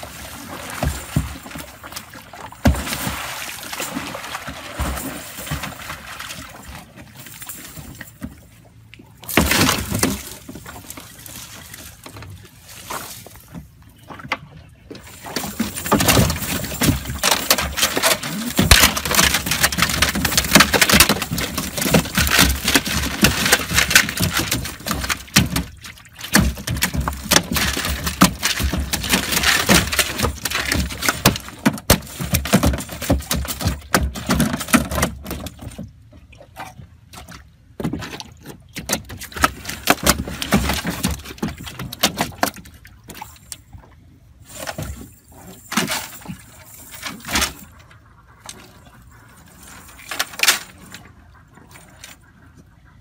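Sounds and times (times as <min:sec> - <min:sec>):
fish slapping on boat floor: 0:00.0 - 0:08.5, 0:09.2 - 0:35.9, 0:37.2 - 0:43.8
water splashing and dripping: 0:00.0 - 0:53.0.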